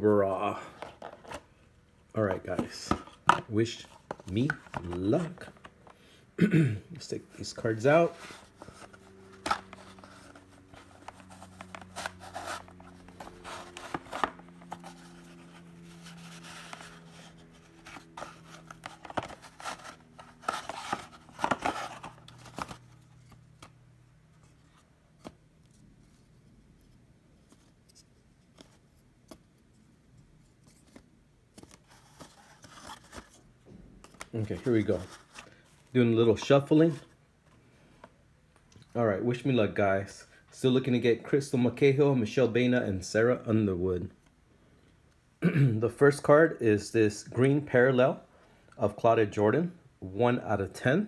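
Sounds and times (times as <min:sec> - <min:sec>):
cards rustling and clicking: 0:00.4 - 0:06.2, 0:07.0 - 0:38.9.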